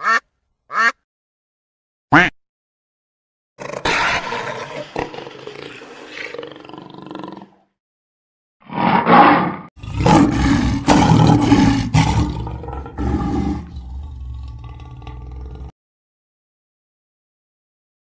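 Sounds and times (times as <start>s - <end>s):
lion roaring: 3.6s - 7.6s, 8.6s - 15.7s
big cat growling: 3.6s - 7.7s, 8.6s - 15.8s.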